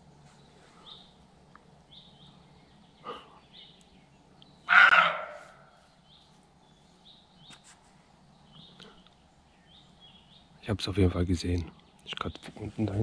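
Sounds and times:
faint bird chirps: 0.0 - 12.4
deer barking: 4.6 - 5.8.

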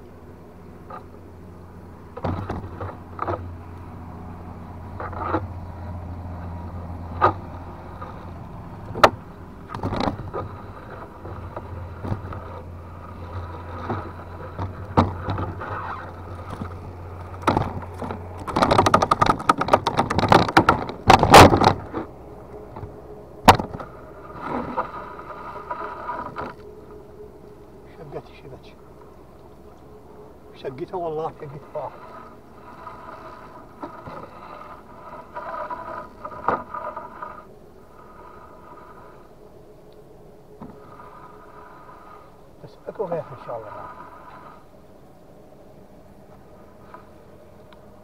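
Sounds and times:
knocks against boat hull: 23.4 - 23.8.

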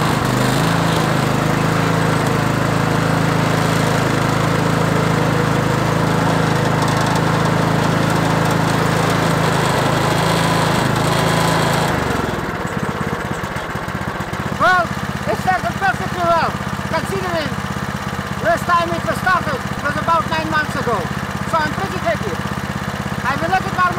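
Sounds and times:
lawn mower engine running: 0.0 - 23.9.

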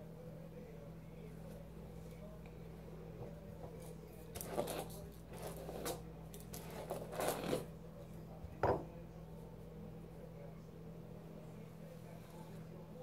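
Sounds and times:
hairbrush knocking on counter: 8.6 - 8.9.

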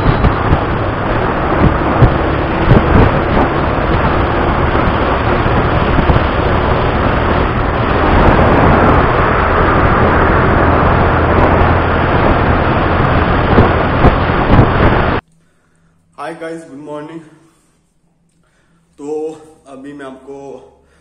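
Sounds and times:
wind rushing over microphone: 0.0 - 15.2
motorcycle engine hum: 0.0 - 15.3.

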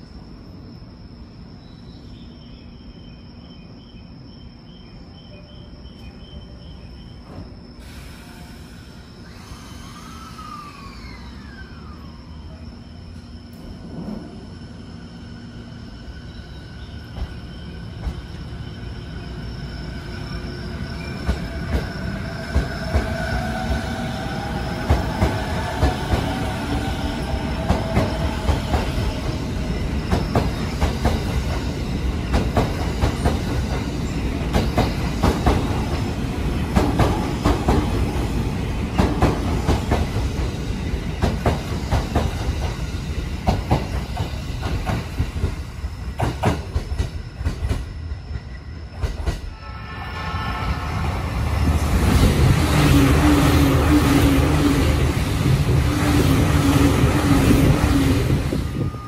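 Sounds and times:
train wheels clattering over rail joints: 43.4 - 47.9.

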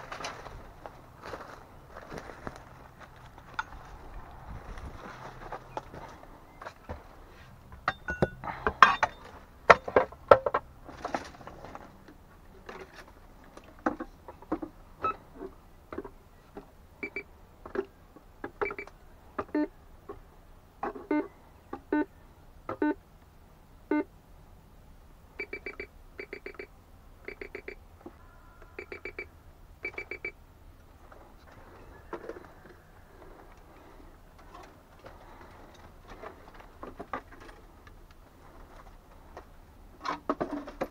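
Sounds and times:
metal detector beeping: 17.0 - 17.3, 18.6 - 18.9, 25.4 - 27.8, 28.7 - 30.4.

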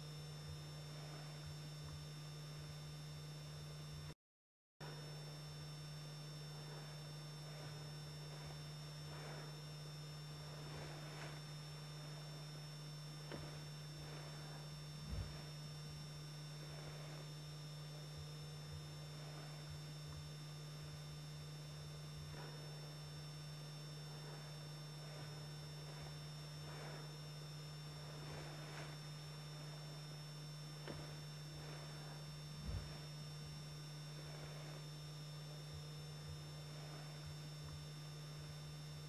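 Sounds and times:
high whine: 0.0 - 4.2, 4.8 - 39.0
low electrical hum: 0.0 - 4.2, 4.8 - 39.0
faint hiss: 6.5 - 17.4, 24.0 - 34.9
low thump: 15.0 - 15.5.

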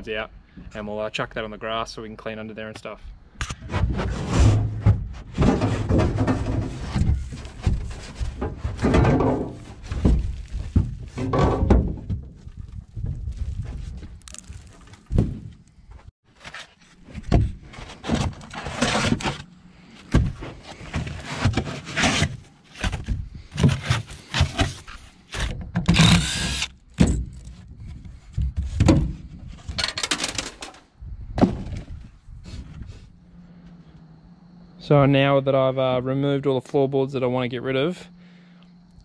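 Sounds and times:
squeaking scrape: 3.6 - 11.4, 16.3 - 26.7
knocks and thumps in boat hull: 4.7 - 13.2.

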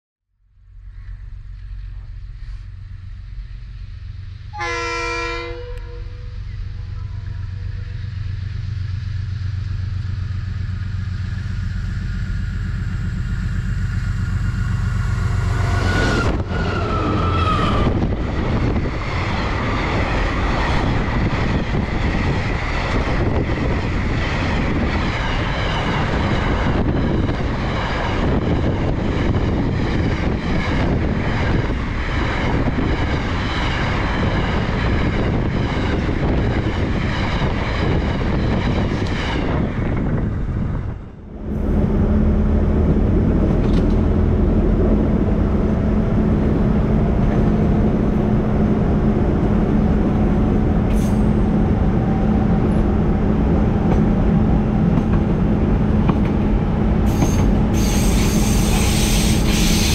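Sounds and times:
locomotive engine rumble: 0.4 - 59.9.

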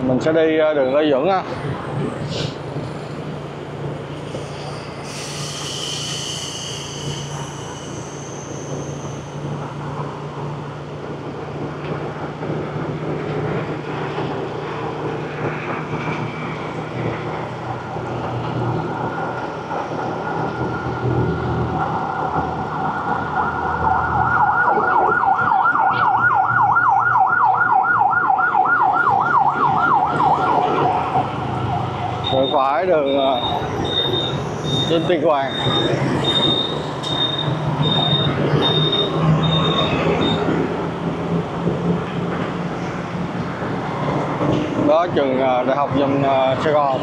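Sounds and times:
street traffic hum: 0.0 - 47.0
emergency vehicle siren: 13.4 - 42.4.

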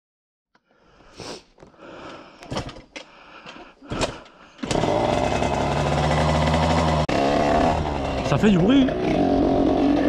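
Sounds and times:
two-stroke engine running loud: 4.6 - 10.0.

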